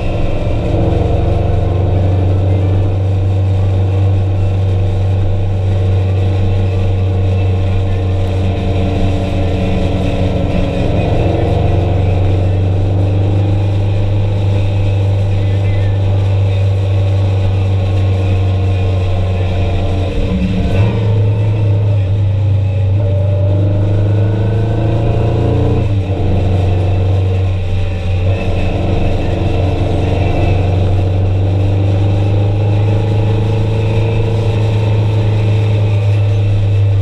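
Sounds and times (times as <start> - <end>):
vehicle engine running: 0.0 - 37.0.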